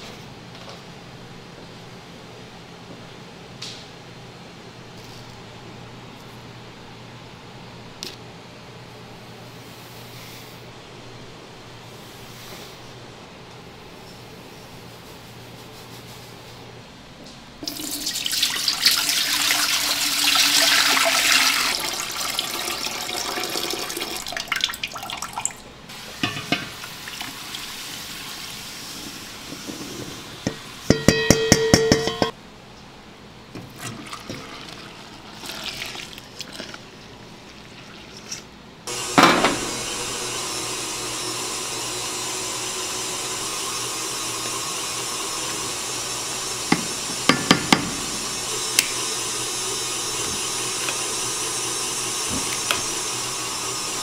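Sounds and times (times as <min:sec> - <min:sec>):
steady hiss: 0:25.9 - 0:30.9, 0:38.9 - 0:54.0.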